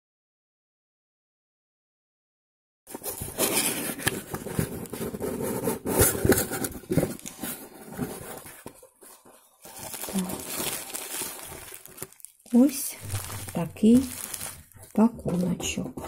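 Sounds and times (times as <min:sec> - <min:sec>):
bubble wrap rustling: 0:02.9 - 0:16.0.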